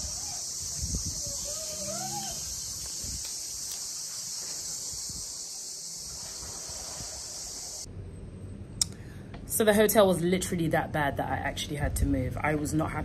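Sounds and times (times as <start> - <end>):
cicadas chorus: 0.0 - 7.9.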